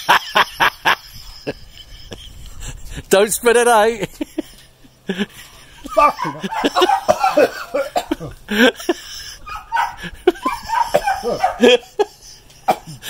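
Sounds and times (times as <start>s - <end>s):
man laughing: 0.0s - 3.1s, 3.8s - 13.0s
man crying out: 5.9s - 8.8s, 9.5s - 12.1s
man gasping and coughing: 7.1s - 9.2s, 12.4s - 13.0s.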